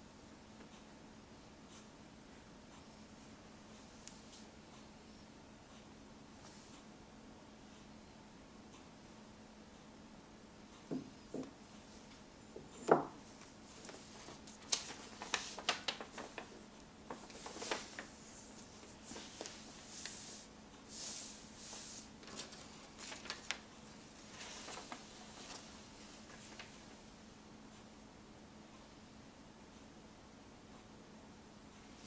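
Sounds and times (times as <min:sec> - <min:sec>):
soft knocks: 0:10.9 - 0:11.5, 0:12.8 - 0:13.2
paper map crinkling: 0:13.2 - 0:27.0.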